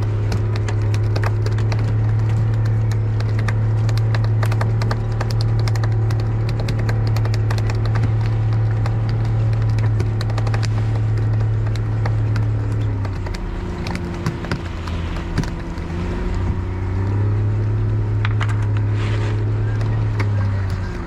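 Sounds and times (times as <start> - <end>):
irregular tapping and knocking: 0.0 - 16.8
boat engine humming: 0.0 - 21.0.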